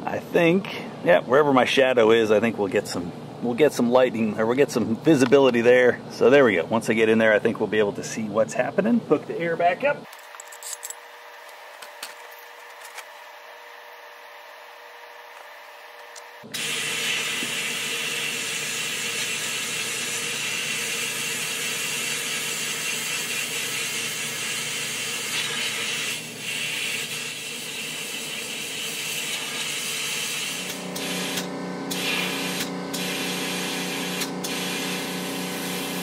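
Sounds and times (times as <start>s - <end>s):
compressed air hissing: 16.6s - 36.0s.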